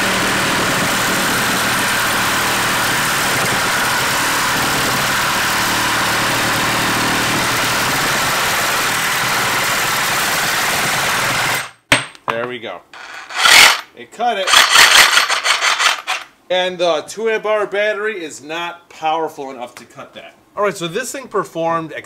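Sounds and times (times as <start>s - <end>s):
reciprocating saw cutting steel pipe: 13.0s - 13.9s, 14.5s - 16.2s.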